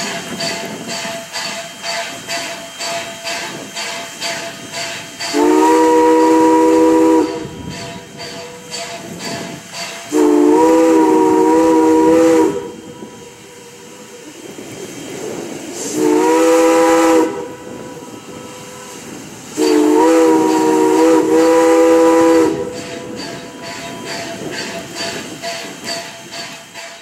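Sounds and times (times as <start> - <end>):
locomotive rushing hiss: 0.0 - 27.0
steam whistle blasts: 4.8 - 14.3, 15.8 - 25.0.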